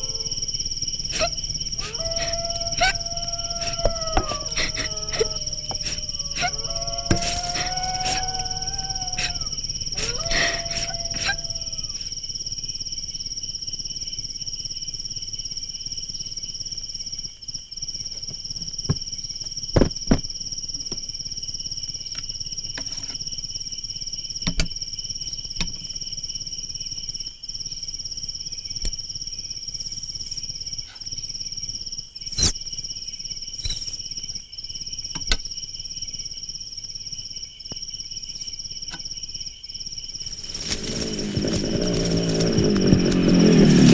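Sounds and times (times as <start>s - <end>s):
dog howling: 0.0s - 12.1s, 40.6s - 43.9s
crickets trilling: 0.0s - 43.9s.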